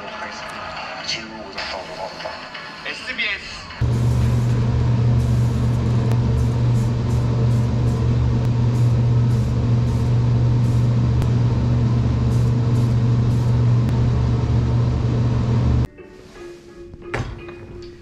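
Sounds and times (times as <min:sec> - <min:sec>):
spray paint can hissing: 0:03.8 - 0:11.0, 0:12.2 - 0:13.7
electric motor humming: 0:03.8 - 0:15.9.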